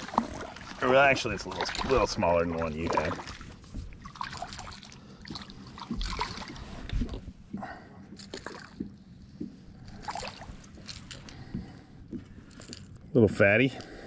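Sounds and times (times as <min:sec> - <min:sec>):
fish splashing at water surface: 0:00.0 - 0:02.2, 0:02.8 - 0:07.2
water sloshing: 0:00.0 - 0:12.4.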